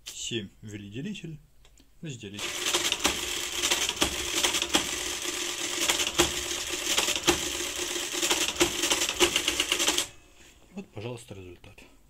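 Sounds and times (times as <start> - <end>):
calculator motor humming: 2.4 - 10.1
rapid mechanical clattering: 2.4 - 10.1.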